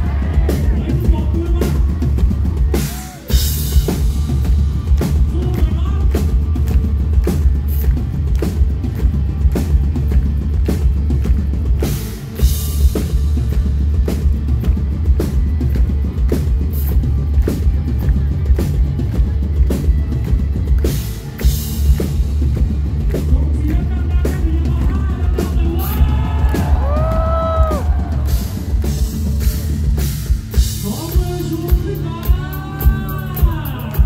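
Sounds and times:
bass guitar: 0:00.0 - 0:34.0
drum kit: 0:00.0 - 0:34.0
person singing: 0:30.8 - 0:34.0.

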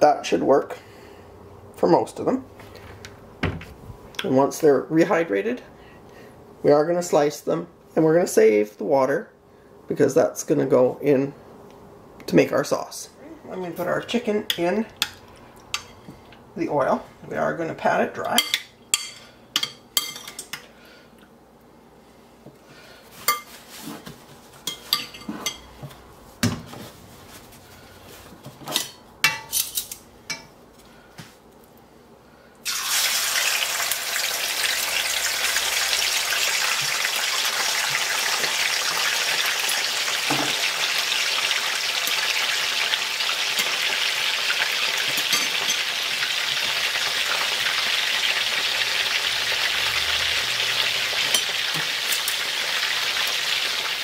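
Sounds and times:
kitchen utensils clinking: 0:18.3 - 0:20.6, 0:24.6 - 0:25.8, 0:28.6 - 0:30.5, 0:45.0 - 0:46.0, 0:51.2 - 0:52.4
chicken sizzling in a wok: 0:32.6 - 0:54.0.

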